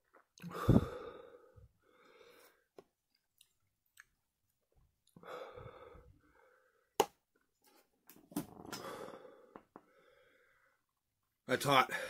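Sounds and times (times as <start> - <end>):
man breathing heavily: 0.4 - 2.7, 5.2 - 7.0, 8.8 - 10.8.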